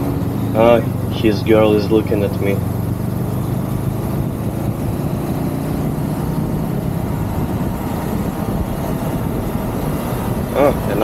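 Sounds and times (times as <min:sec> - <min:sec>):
motorcycle engine running: 0:00.0 - 0:11.0
wind noise: 0:03.0 - 0:11.0.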